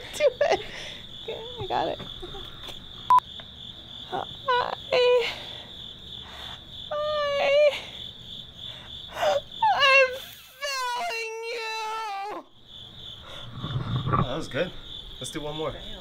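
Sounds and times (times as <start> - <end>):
woman sobbing and wailing: 2.2 - 2.6, 4.1 - 5.6, 6.9 - 8.0, 8.9 - 12.5.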